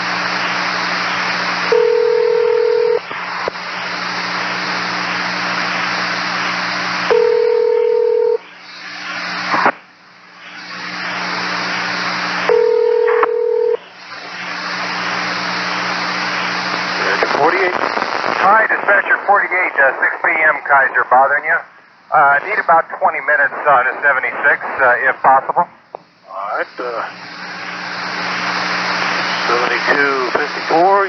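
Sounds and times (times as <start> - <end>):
radio static hiss: 0.0 - 31.0.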